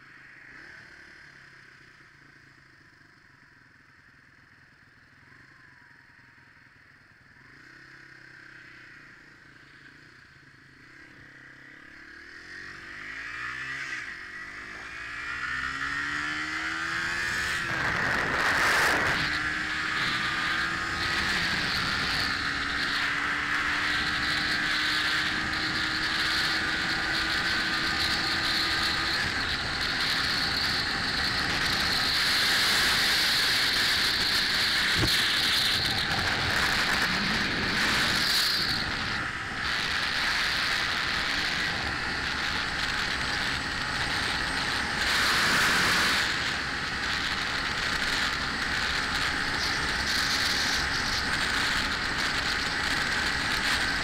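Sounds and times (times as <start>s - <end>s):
motorcycle engine hum: 0.0s - 54.0s
wind rushing over microphone: 16.3s - 54.0s.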